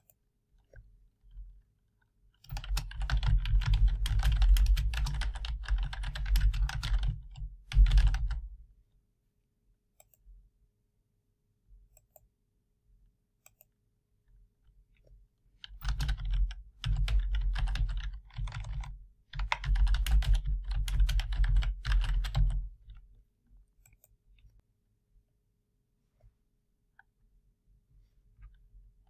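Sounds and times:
computer keyboard typing: 2.4s - 8.5s, 15.6s - 23.0s.

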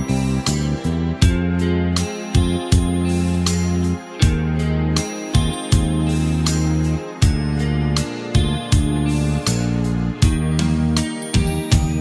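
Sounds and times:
deep sustained bass: 0.0s - 12.0s
struck chords: 0.0s - 12.0s.

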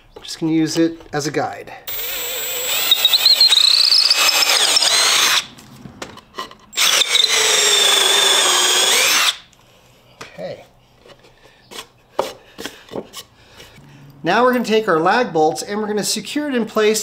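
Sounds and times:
cordless drill motor whine: 1.9s - 5.5s, 6.8s - 9.4s.

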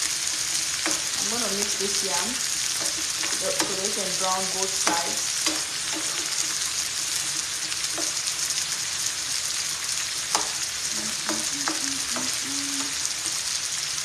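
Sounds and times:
spatula scraping a pan: 0.0s - 1.8s, 2.4s - 13.4s
slices sizzling in hot oil: 0.0s - 14.0s.

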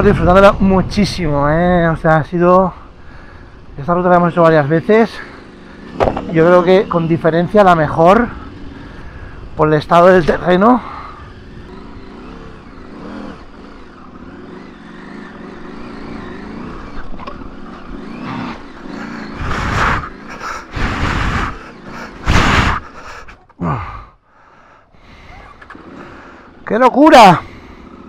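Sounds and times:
off-road motorcycle engine: 0.0s - 28.0s
loud noise bursts: 19.2s - 23.0s.

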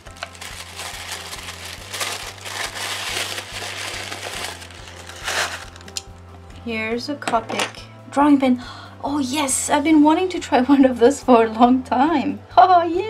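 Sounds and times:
tissue paper crinkling: 0.0s - 6.0s.

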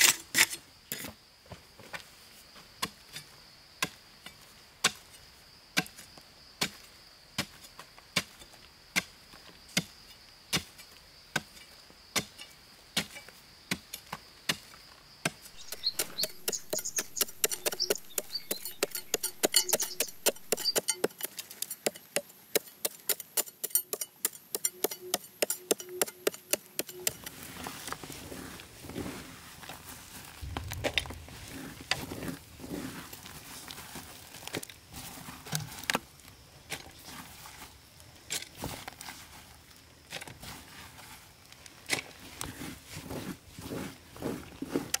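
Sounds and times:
axe chopping wood: 15.2s - 27.3s.

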